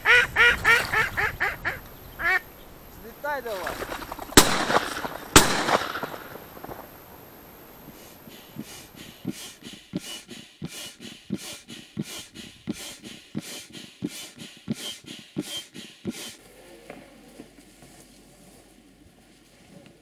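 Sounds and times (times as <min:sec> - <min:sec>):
foot pump thumping and puffing: 0:07.9 - 0:17.0.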